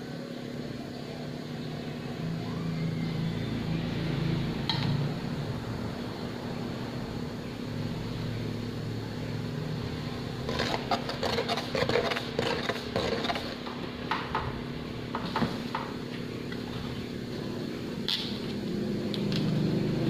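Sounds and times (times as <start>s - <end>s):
ladle scraping metal pot: 10.4s - 13.7s.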